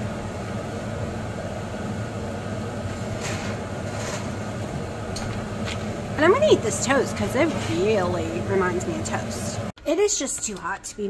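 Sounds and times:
appliance humming: 0:00.0 - 0:09.8
baking tray scraping: 0:02.8 - 0:04.7, 0:05.3 - 0:08.8.

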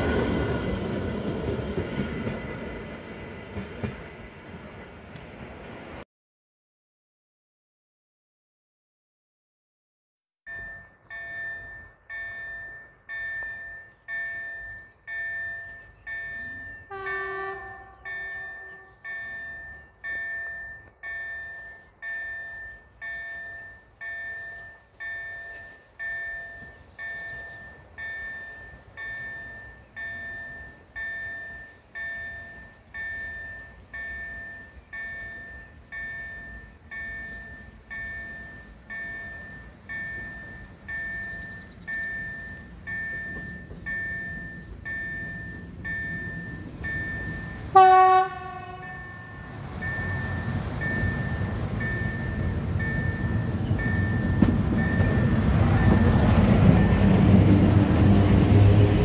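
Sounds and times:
low rumble of train: 0:00.0 - 0:06.0, 0:10.5 - 0:59.0
level crossing warning bell: 0:10.5 - 0:59.0
distant train horn: 0:16.4 - 0:19.6, 0:47.2 - 0:51.8.

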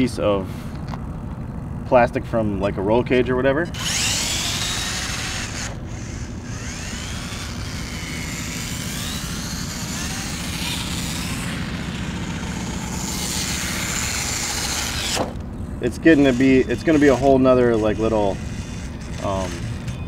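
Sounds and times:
electric motor whining: 0:03.7 - 0:20.0.

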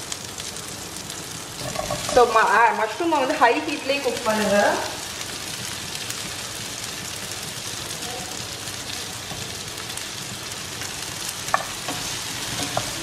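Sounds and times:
mushrooms sizzling in a frying pan: 0:00.0 - 0:13.0.

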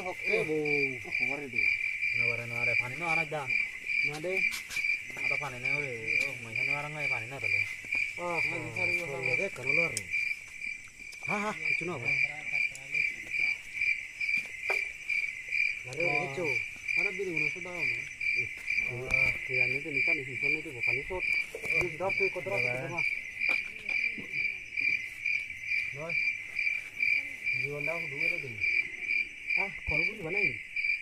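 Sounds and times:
men talking quietly: 0:00.0 - 0:10.3, 0:11.2 - 0:13.9, 0:15.6 - 0:24.8
crickets chirping: 0:00.0 - 0:31.0.

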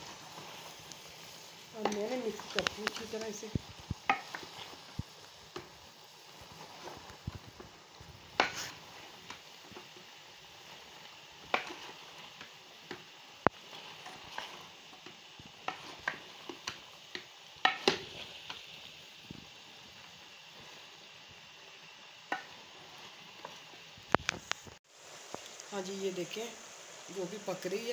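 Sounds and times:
ladle stirring in metal pot: 0:00.0 - 0:18.9.

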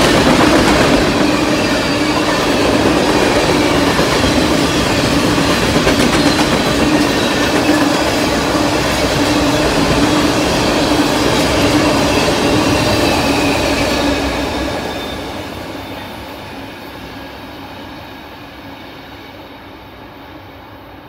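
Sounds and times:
freight train cars rolling past: 0:00.0 - 0:21.0.

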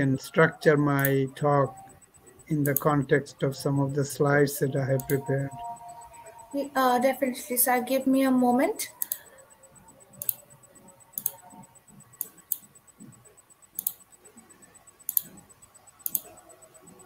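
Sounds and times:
computer mouse clicks: 0:00.6 - 0:03.0, 0:04.9 - 0:06.4, 0:08.8 - 0:17.0.

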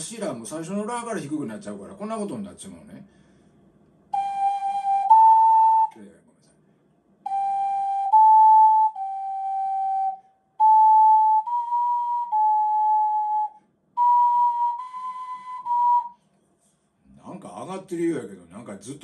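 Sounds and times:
ocarina playing held notes: 0:04.1 - 0:06.0, 0:07.2 - 0:16.2.

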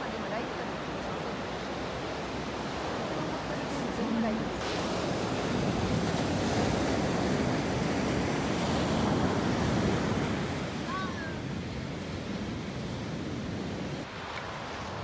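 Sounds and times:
surf washing up a beach: 0:00.0 - 0:15.0
wind on microphone: 0:00.8 - 0:15.0.

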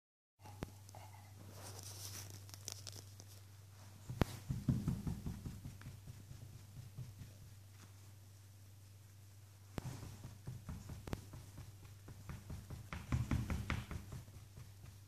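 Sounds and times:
dog leg thumping: 0:04.0 - 0:07.5, 0:09.8 - 0:15.0
fur rustling: 0:09.3 - 0:11.7.

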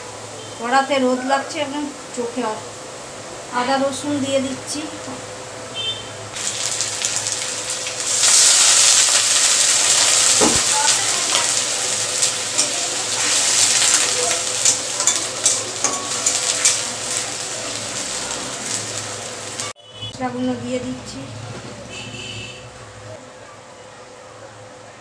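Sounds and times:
onions sizzling in hot oil: 0:06.4 - 0:19.8
metal spatula scraping pan: 0:12.5 - 0:17.2.

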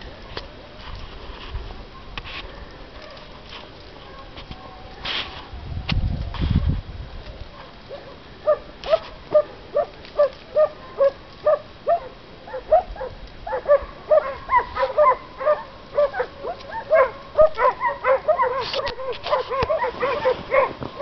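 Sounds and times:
dog yelping barks: 0:07.9 - 0:21.0.

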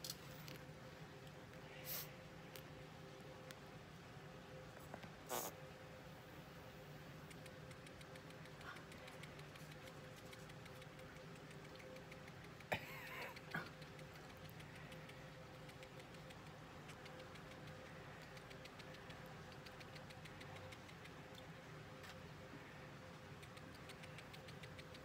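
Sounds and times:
faint steady hum: 0:00.0 - 0:25.0
fast faint ticking: 0:07.2 - 0:21.7, 0:23.2 - 0:25.0.

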